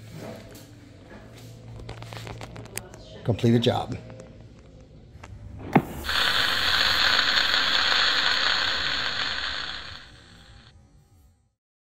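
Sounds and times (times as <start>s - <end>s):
loud steady hiss: 5.8s - 10.7s.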